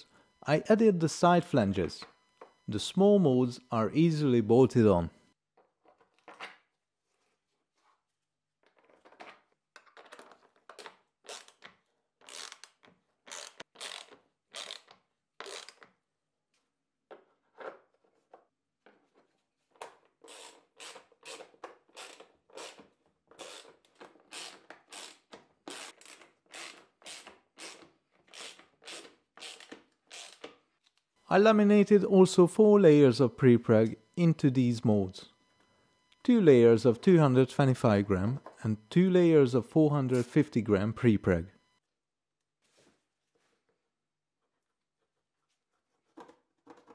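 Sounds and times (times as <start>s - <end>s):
ratchet wrench clicking: 12.2s - 15.8s, 20.3s - 22.8s, 23.4s - 30.4s.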